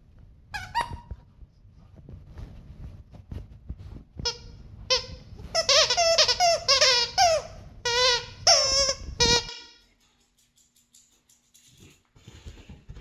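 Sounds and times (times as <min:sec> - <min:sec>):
squeaky toy squeaking: 0:00.6 - 0:01.1, 0:04.3 - 0:09.8.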